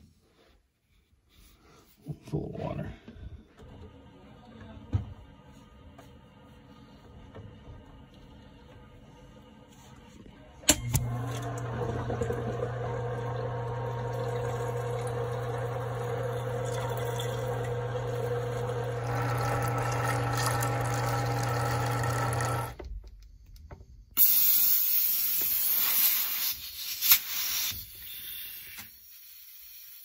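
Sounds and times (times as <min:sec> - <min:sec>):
pump motor hum: 0:10.7 - 0:22.8
loud gas hiss: 0:24.2 - 0:30.0.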